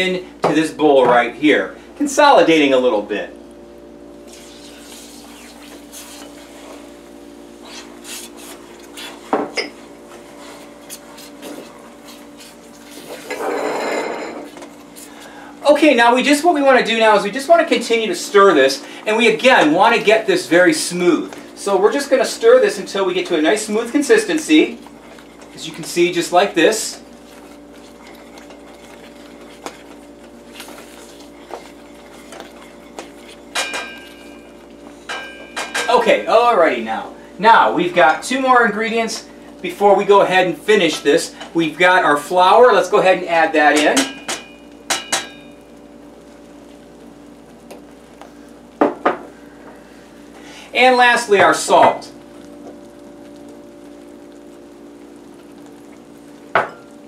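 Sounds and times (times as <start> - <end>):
steady hum: 0.0 - 57.0
wooden spoon stirring thick batter: 4.3 - 7.0, 7.6 - 13.4, 14.4 - 37.0
spoon scraping saucepan: 24.9 - 34.5.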